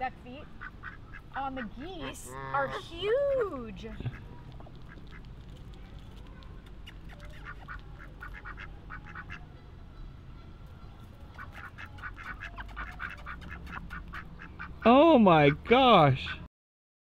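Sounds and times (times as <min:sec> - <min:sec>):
ducks quacking: 0:00.6 - 0:03.0, 0:03.9 - 0:05.3, 0:06.9 - 0:09.5, 0:11.3 - 0:16.5.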